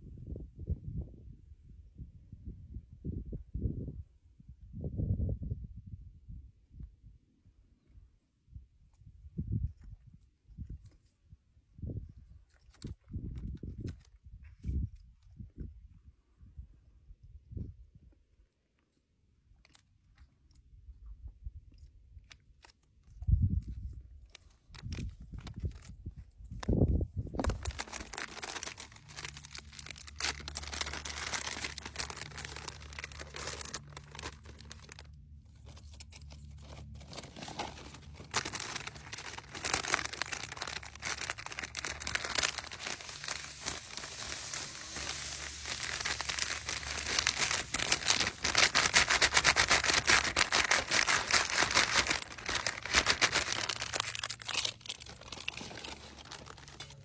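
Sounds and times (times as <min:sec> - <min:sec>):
packaging crinkling and rustling: 0:24.3 - 0:26.0, 0:27.4 - 0:57.0.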